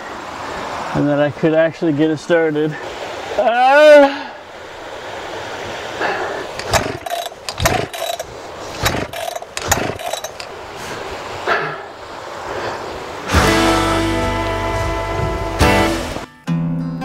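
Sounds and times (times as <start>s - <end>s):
chainsaw starter cord whirring: 6.5s - 10.6s.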